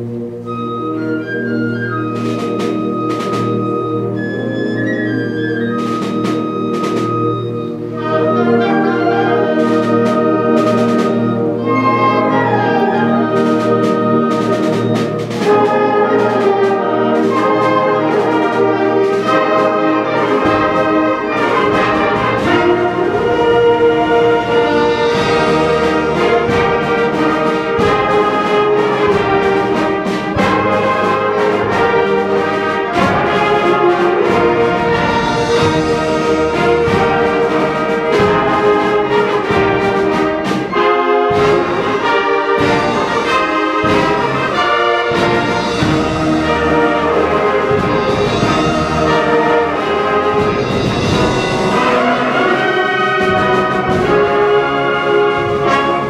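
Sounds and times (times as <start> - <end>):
concert band playing: 0.0 - 56.0
heavy low accents: 0.0 - 56.0.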